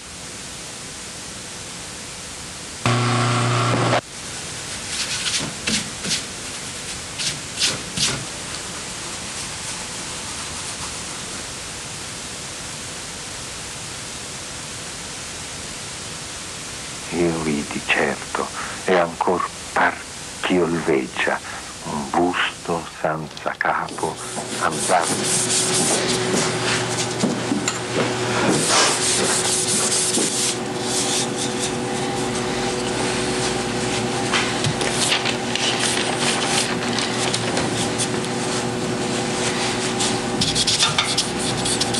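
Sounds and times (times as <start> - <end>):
faint steady hum: 0.0 - 4.8, 8.4 - 41.9
recording hiss: 4.0 - 27.0
brush rubbing through thick ink: 24.3 - 27.2, 28.3 - 41.9.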